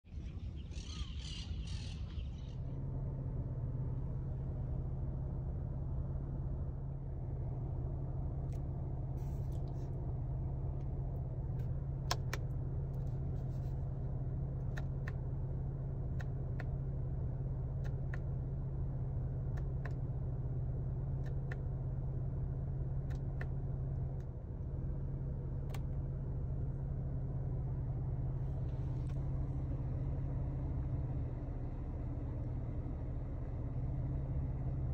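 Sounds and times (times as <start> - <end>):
car engine drone from inside cabin: 0.0 - 34.9
sharp clicks: 12.0 - 12.5.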